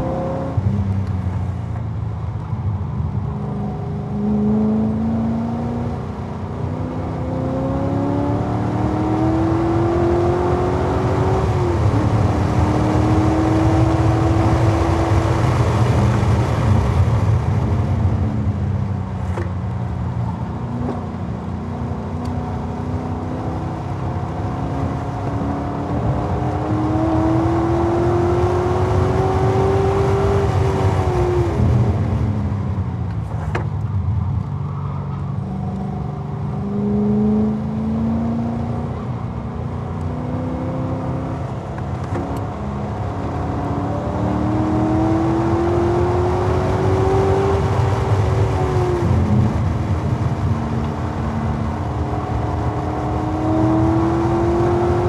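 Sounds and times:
car engine revving hard: 0:06.7 - 0:16.9, 0:21.7 - 0:31.7, 0:40.0 - 0:55.0.

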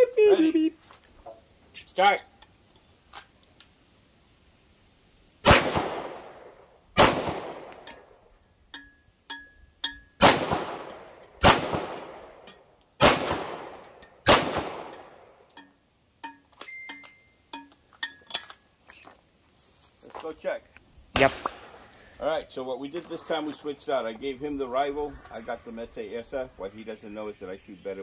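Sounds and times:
pistol shots echoing: 0:05.4 - 0:07.9, 0:10.2 - 0:15.3.

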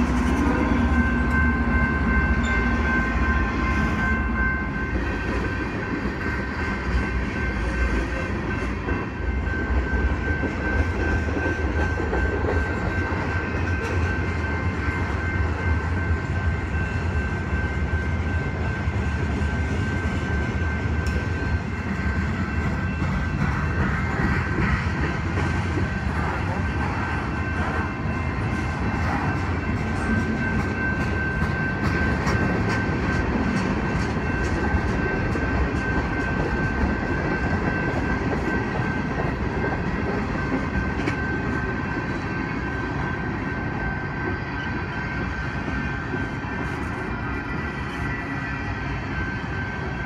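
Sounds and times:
thin high ringing tone: 0:00.0 - 0:05.5
train wheels rumbling on rail: 0:00.0 - 0:50.0.

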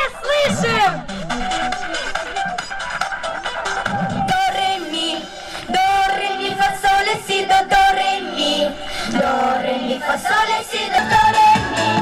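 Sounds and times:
backing music over loudspeakers: 0:00.0 - 0:12.0
girls singing into microphones: 0:04.2 - 0:12.0.

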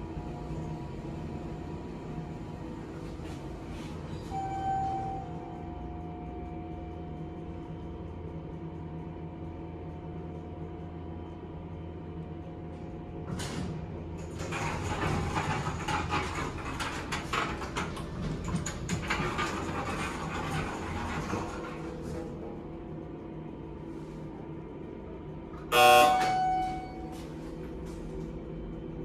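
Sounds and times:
elevator hum: 0:00.0 - 0:29.0
elevator doors rattling: 0:13.2 - 0:22.6.

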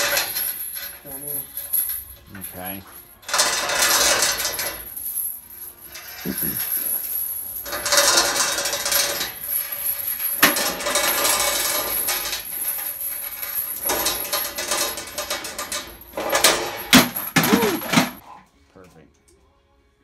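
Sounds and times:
metal chain rattling and clinking: 0:00.0 - 0:18.2
sharp metal clank: 0:13.8 - 0:18.2.

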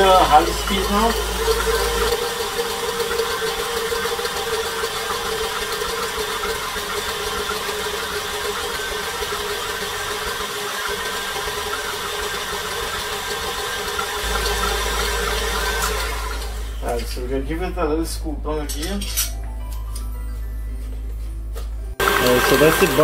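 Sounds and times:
stand mixer running: 0:00.0 - 0:17.2, 0:22.0 - 0:23.0.

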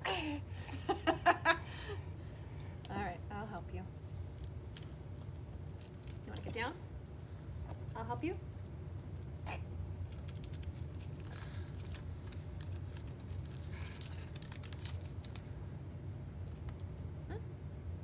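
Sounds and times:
steady low hum: 0:00.0 - 0:18.0
plastic candy wrapper crinkling: 0:04.2 - 0:06.6, 0:10.0 - 0:15.5, 0:16.4 - 0:17.0.

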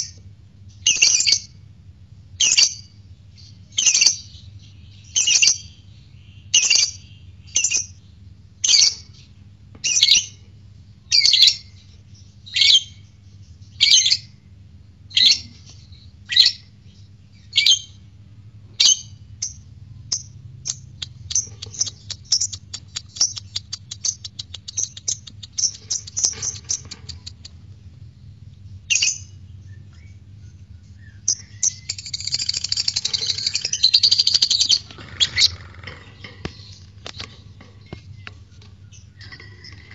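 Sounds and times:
bird ticking chatter: 0:19.4 - 0:27.6, 0:31.3 - 0:38.4.

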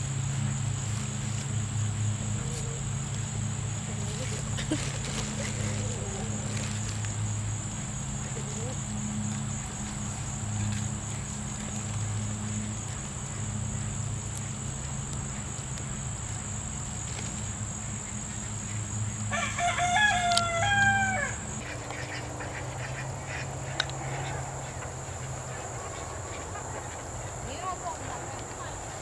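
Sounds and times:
steady high whine: 0:00.0 - 0:29.0
rooster crowing: 0:19.3 - 0:21.8, 0:22.8 - 0:29.0.

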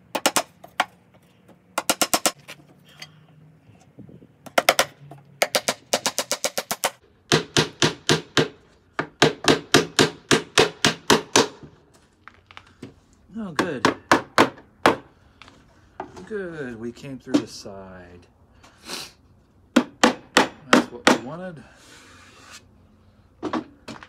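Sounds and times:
hammer driving nails into wood: 0:01.8 - 0:02.4, 0:04.5 - 0:11.7.

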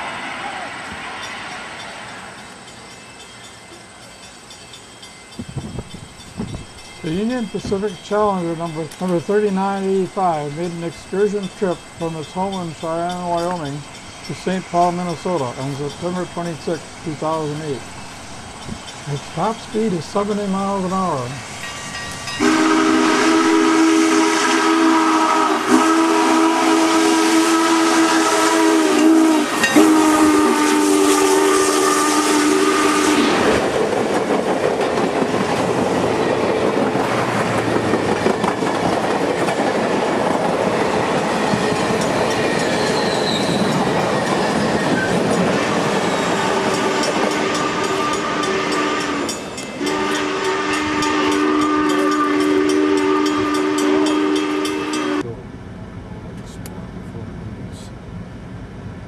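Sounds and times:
train rumbling past: 0:00.0 - 0:59.0
steam locomotive chime whistle: 0:00.2 - 0:33.5, 0:42.0 - 0:55.3.

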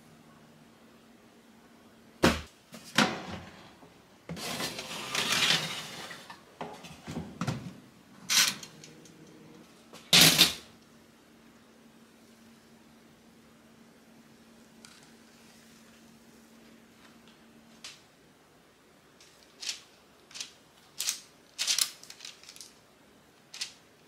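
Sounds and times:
pan scraping into oven: 0:04.3 - 0:07.0.

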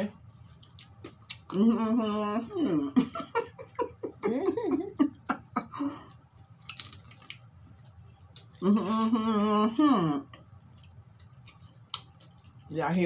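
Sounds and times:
soft chewing: 0:00.2 - 0:01.6, 0:06.0 - 0:08.8, 0:10.3 - 0:13.0.

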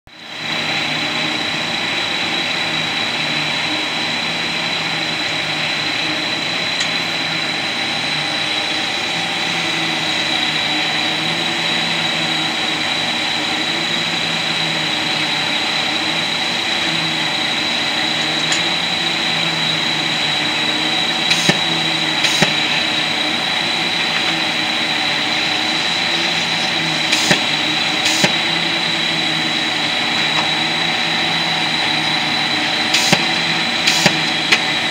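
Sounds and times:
conveyor machinery din: 0:00.1 - 0:34.9
high machine whine: 0:00.1 - 0:34.9
machinery clacks: 0:21.0 - 0:23.2, 0:25.5 - 0:34.9.

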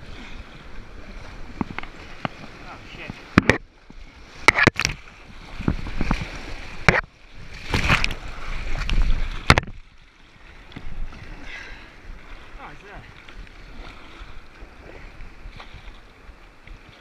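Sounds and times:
splashing paddle strokes: 0:00.0 - 0:17.0
paddle knocking against boat: 0:01.6 - 0:03.6, 0:04.4 - 0:05.0, 0:05.6 - 0:08.1, 0:08.8 - 0:09.8.

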